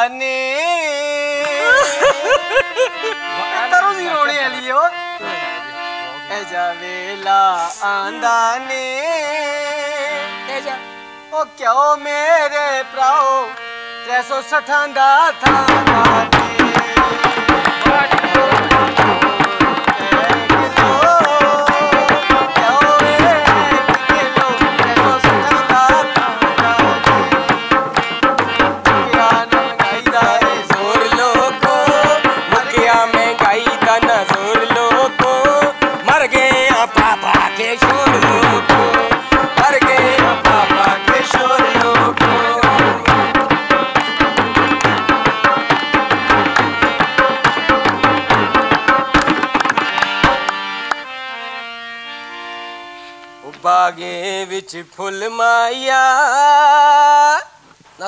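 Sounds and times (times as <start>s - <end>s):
harmonium melody: 0.0s - 57.3s
hand clapping: 1.4s - 1.9s, 15.5s - 51.1s
barrel drum beating: 15.5s - 36.1s, 37.8s - 50.4s.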